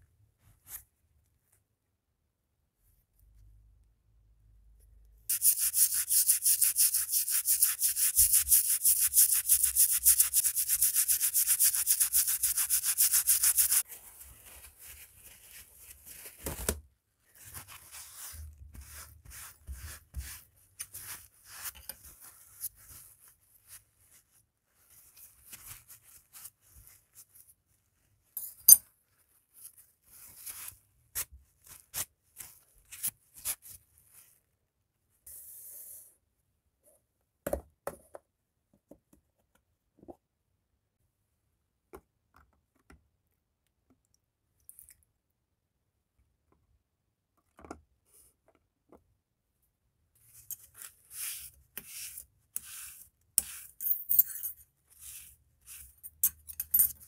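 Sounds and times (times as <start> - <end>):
paper towel wiping blade: 5.3 - 13.8.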